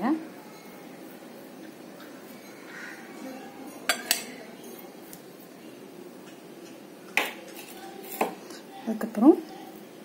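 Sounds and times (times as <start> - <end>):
spoon clinking against glass bowl: 3.7 - 4.4.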